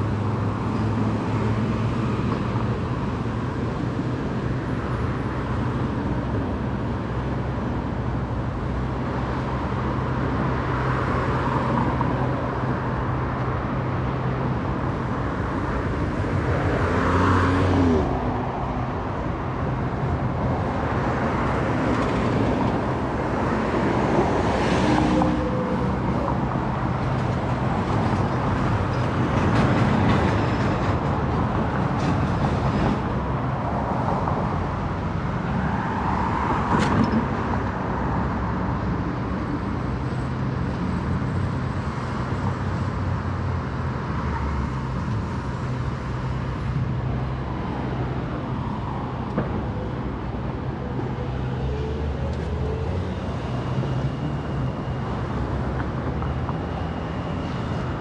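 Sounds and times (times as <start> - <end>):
cars passing: 0.0 - 58.0
louder vehicles going by: 0.0 - 58.0.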